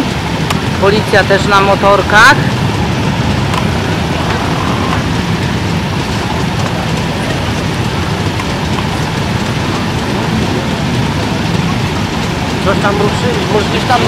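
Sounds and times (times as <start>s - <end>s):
motorcycle engines idling: 0.0s - 14.0s.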